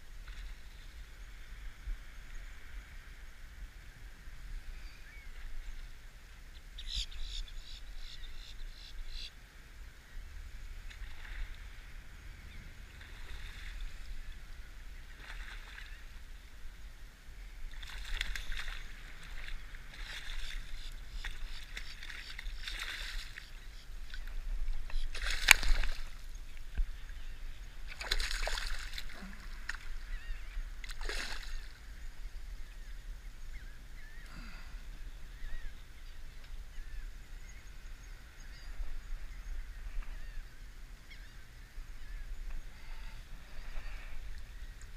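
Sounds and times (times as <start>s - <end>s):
wind rumble on microphone: 0.0s - 44.9s
fish thrashing and splashing: 25.1s - 26.2s, 27.9s - 29.9s.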